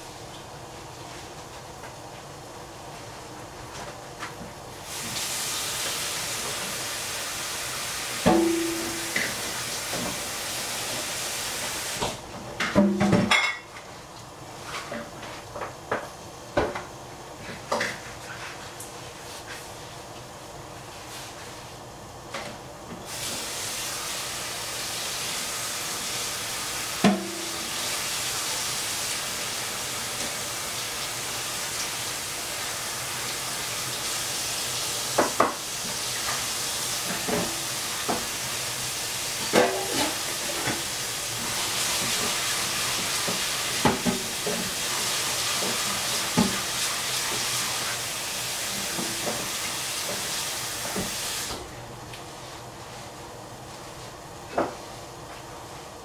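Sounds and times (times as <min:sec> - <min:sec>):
steady hiss: 0:04.6 - 0:12.2, 0:23.0 - 0:51.7
kitchenware clinking: 0:08.3 - 0:09.4, 0:12.6 - 0:13.8.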